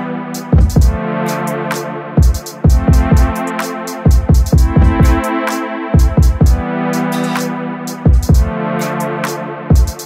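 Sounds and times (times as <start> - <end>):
sustained synth chords: 0.0 - 9.9
drum-machine beat: 0.0 - 10.0
deep kick drums: 0.5 - 1.0, 2.2 - 3.4, 4.1 - 5.2, 6.0 - 6.6, 8.1 - 8.5.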